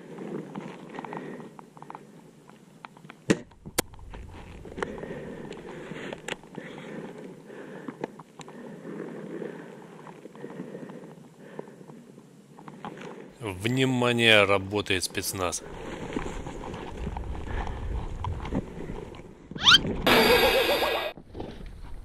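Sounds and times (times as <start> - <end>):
rustling of dry grass: 0.0 - 13.3, 15.3 - 19.3.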